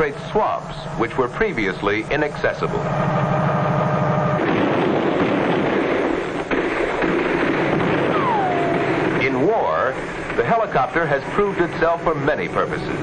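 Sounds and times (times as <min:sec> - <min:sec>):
helicopter engine and rotor: 0:00.6 - 0:06.4, 0:07.5 - 0:13.0
tone sliding down in pitch: 0:08.1 - 0:09.2.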